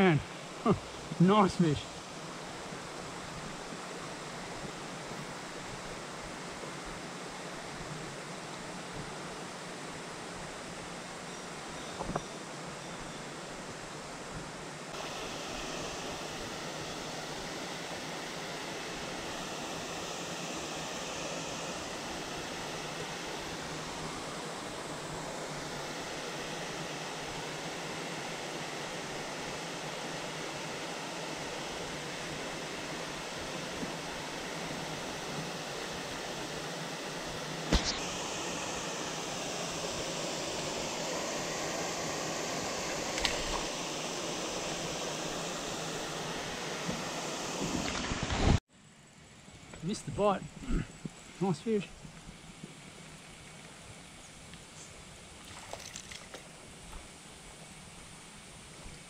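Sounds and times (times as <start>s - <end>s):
stream rushing over cascades: 13.4s - 48.6s.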